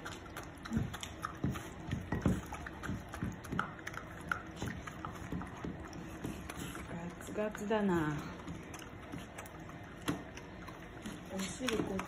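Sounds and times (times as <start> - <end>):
dogs licking and chewing: 0.0 - 12.0.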